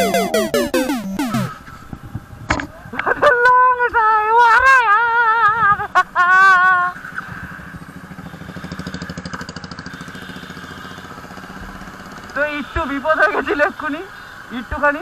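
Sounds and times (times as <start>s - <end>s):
wavering voice-like tone: 0.0s - 1.5s.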